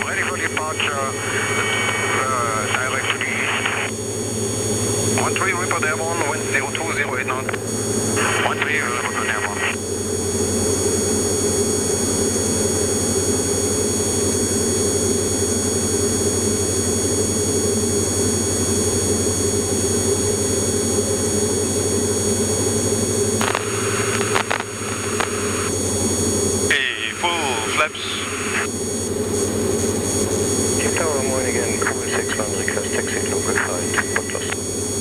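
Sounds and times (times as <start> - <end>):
aircraft engine and propeller drone: 0.0 - 35.0
clicks: 23.4 - 25.7.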